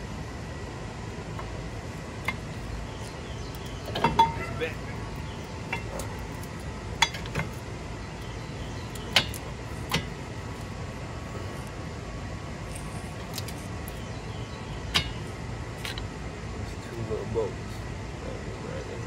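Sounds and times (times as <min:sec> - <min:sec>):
low background rumble: 0:00.0 - 0:19.0
metal clinks: 0:03.5 - 0:04.7.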